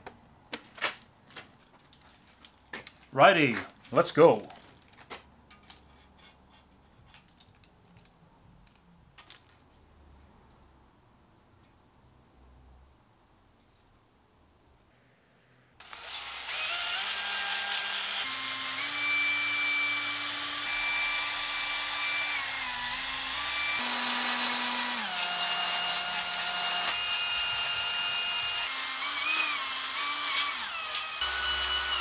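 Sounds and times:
drill motor whine: 0:15.8 - 0:32.0.

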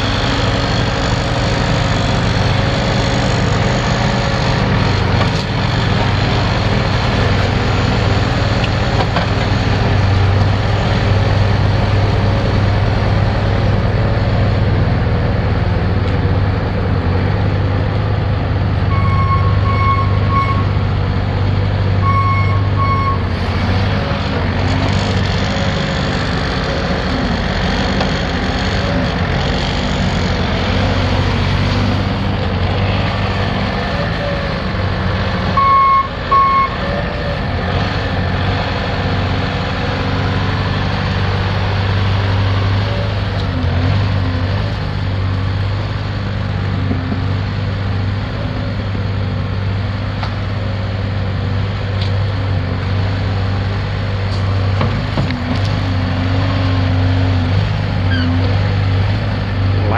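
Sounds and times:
diesel engine running: 0:00.0 - 0:59.9
backup alarm beeping: 0:18.9 - 0:20.7, 0:22.0 - 0:23.2.

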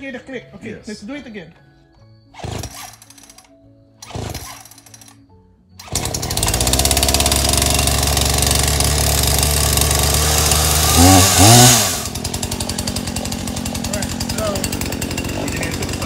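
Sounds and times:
chainsaw engine running: 0:02.4 - 0:05.2, 0:05.8 - 0:16.0
starter cord pull: 0:02.4 - 0:09.6.

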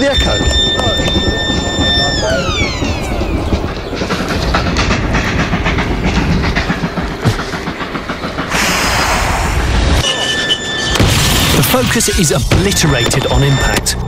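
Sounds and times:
rough rumble with rattles: 0:00.0 - 0:10.0.

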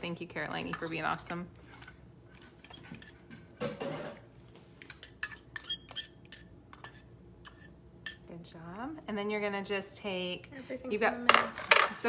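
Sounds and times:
metal utensil scraping ceramic ramekin: 0:00.6 - 0:03.2, 0:04.9 - 0:08.2.

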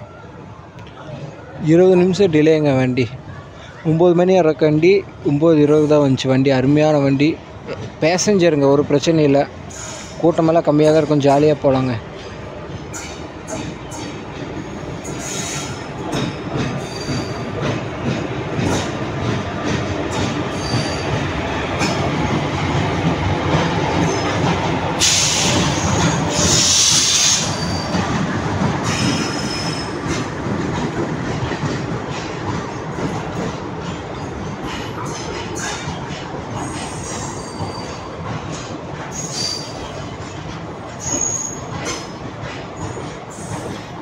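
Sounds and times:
loud high hiss from train: 0:09.7 - 0:10.2, 0:25.0 - 0:27.7
train wheels clicking over rail joints: 0:12.1 - 0:44.0.

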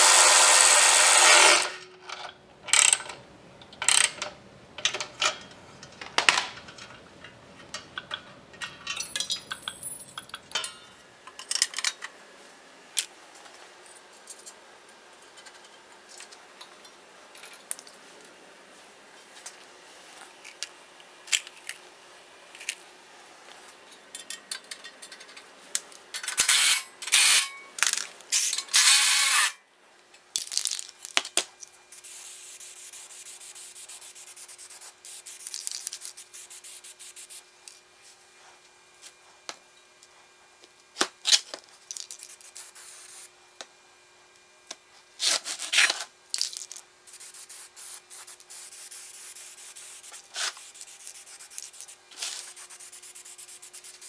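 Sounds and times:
aerosol spray can hissing: 0:47.1 - 0:54.0.

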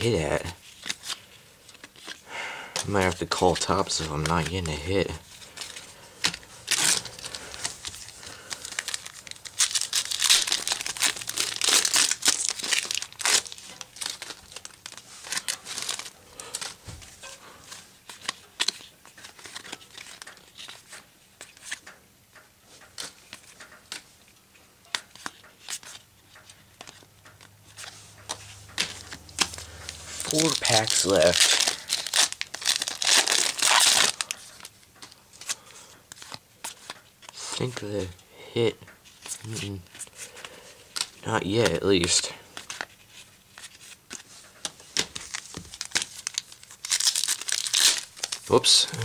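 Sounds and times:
foil wrapper crinkling and tearing: 0:02.8 - 0:17.4, 0:18.0 - 0:21.8, 0:27.8 - 0:38.2, 0:39.1 - 0:49.0.

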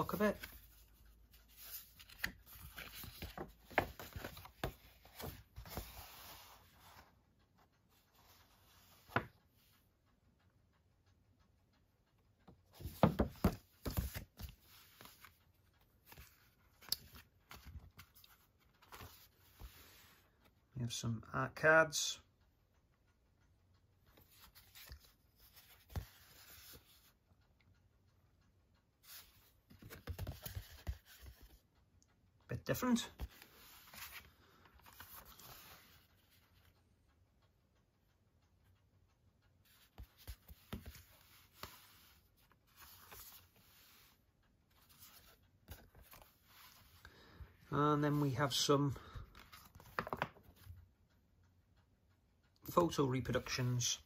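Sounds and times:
paper rustling and crackling: 0:00.0 - 0:06.6, 0:49.3 - 0:50.6
card rustling and tapping: 0:00.0 - 0:09.8, 0:12.5 - 0:20.2, 0:24.1 - 0:27.1, 0:29.0 - 0:31.6, 0:33.0 - 0:36.7, 0:39.6 - 0:47.6, 0:48.9 - 0:50.8
small clicks and rubs: 0:00.0 - 0:20.6, 0:23.4 - 0:32.2, 0:33.1 - 0:51.2.

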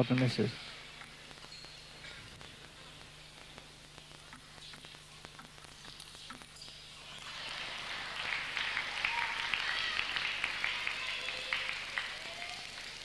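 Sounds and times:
crowd applauding and cheering: 0:06.9 - 0:13.0.

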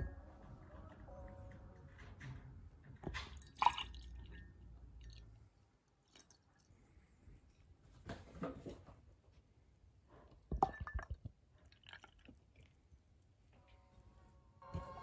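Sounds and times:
thick liquid pouring into glass: 0:03.4 - 0:04.4, 0:10.6 - 0:12.8
wet drips and squishes: 0:05.8 - 0:06.7.

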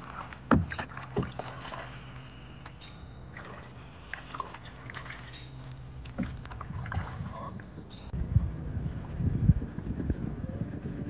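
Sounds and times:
kayak paddle splashing: 0:00.0 - 0:07.8.

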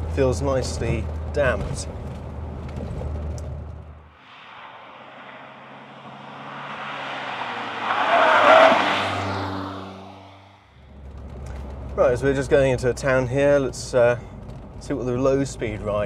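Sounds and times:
low cabin drone: 0:04.2 - 0:10.6
car driving past: 0:04.2 - 0:10.8.

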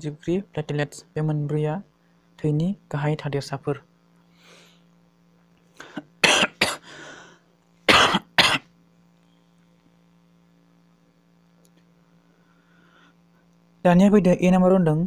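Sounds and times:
faint steady hum: 0:00.0 - 0:15.0
person coughing: 0:05.8 - 0:07.0, 0:07.9 - 0:08.7.

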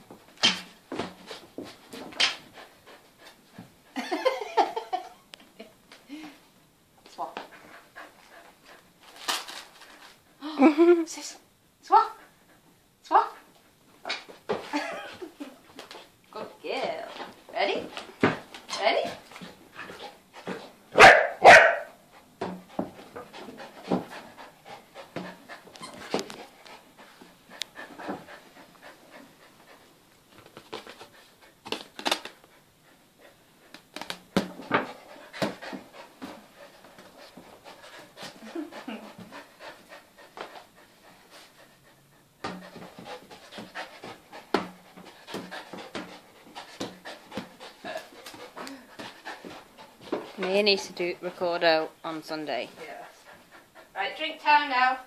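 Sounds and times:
dog panting: 0:01.2 - 0:04.5, 0:07.3 - 0:09.2, 0:16.8 - 0:54.8
dog barking: 0:21.0 - 0:22.0.

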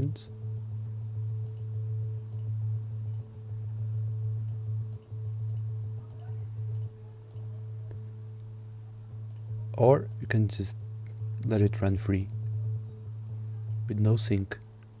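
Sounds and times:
faint higher tones: 0:00.0 - 0:15.0
low synthesizer tone: 0:00.0 - 0:15.0
faint high ticks: 0:01.2 - 0:01.7, 0:02.3 - 0:02.5, 0:04.4 - 0:08.5, 0:09.2 - 0:09.5.

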